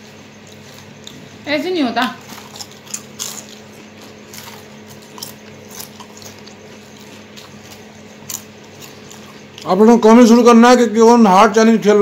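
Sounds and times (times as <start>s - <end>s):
steady low hum: 0.0s - 12.0s
potato chips crunching: 0.1s - 1.4s, 2.0s - 10.3s.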